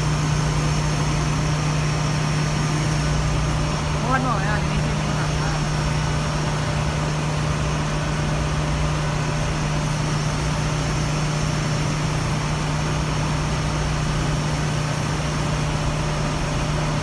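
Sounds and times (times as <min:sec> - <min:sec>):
engine room machinery noise: 0:00.0 - 0:17.0
low hum: 0:03.0 - 0:08.1.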